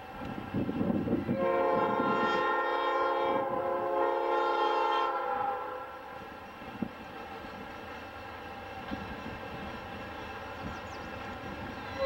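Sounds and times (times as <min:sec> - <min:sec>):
low train rumble: 0:00.0 - 0:12.0.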